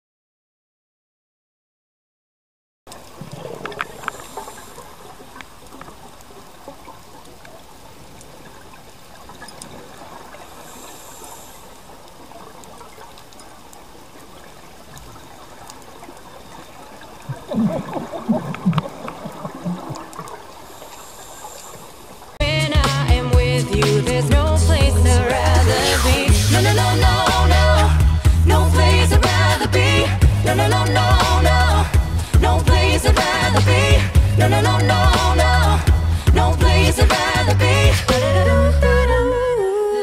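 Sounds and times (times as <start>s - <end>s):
bubbles gurgling underwater: 15.0s - 20.7s.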